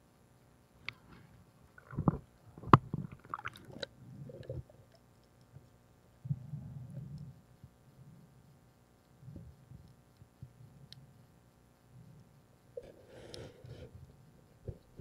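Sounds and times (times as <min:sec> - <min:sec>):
muffled underwater knocks and clicks: 0:01.8 - 0:04.7
low gurgling rumbles: 0:01.8 - 0:04.9.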